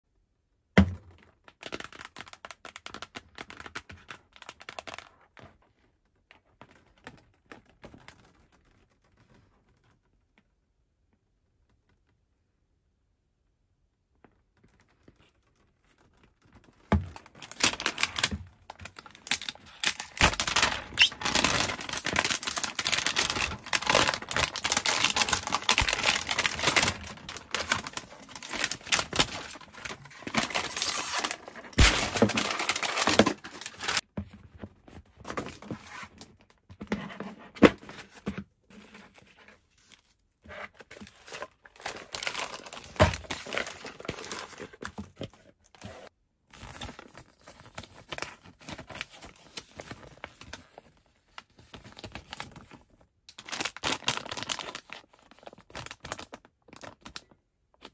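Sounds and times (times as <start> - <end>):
packaging torn and crinkled: 17.2 - 34.0, 41.2 - 44.8, 53.3 - 57.4.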